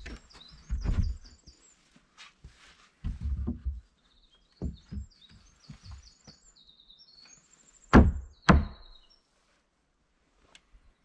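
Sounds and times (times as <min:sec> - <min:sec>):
small bird chirping: 0:00.0 - 0:02.0, 0:03.9 - 0:09.3.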